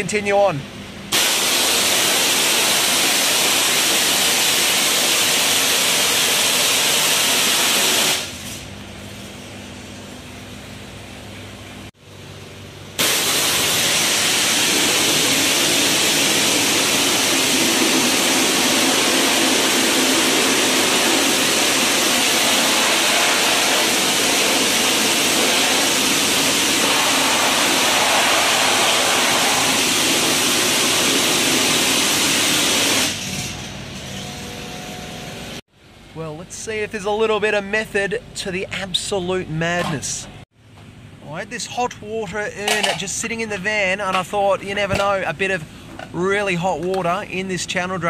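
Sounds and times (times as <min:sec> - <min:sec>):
water jetter spray hiss: 0:01.2 - 0:08.6, 0:13.0 - 0:33.2.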